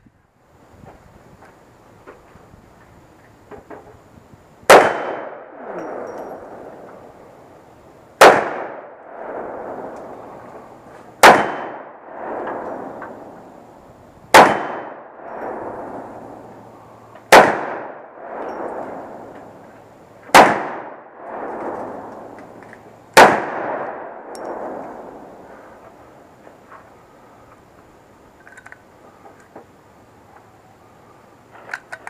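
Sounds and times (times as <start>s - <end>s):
pistol shots with echo: 4.7s - 6.7s, 8.2s - 10.2s, 11.2s - 13.4s, 14.3s - 16.5s, 17.3s - 19.3s, 20.3s - 22.4s, 23.1s - 25.4s.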